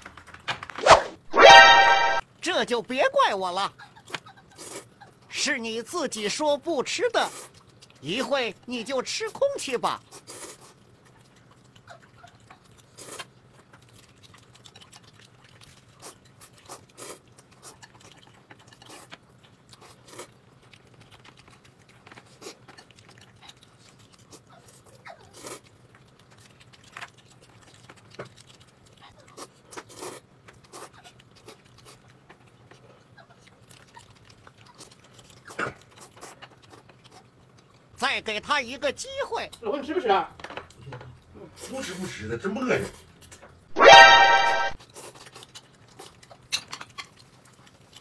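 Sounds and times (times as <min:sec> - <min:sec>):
person chewing and crunching: 0:03.8 - 0:05.3, 0:06.1 - 0:38.0, 0:42.8 - 0:48.0.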